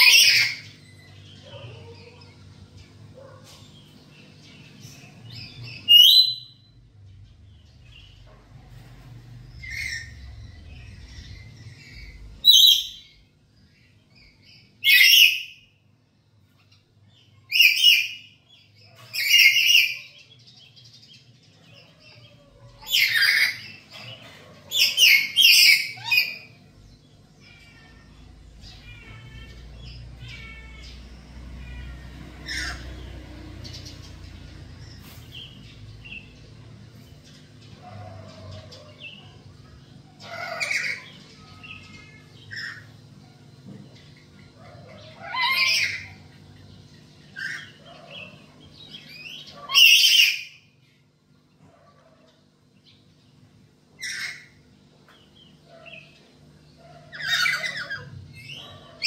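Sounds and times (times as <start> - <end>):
parrots shrieking: 0.0 - 2.4, 3.2 - 6.7, 9.6 - 15.7, 16.5 - 20.4, 21.6 - 36.3, 37.7 - 43.3, 44.4 - 50.8, 53.9 - 54.6, 56.8 - 59.0.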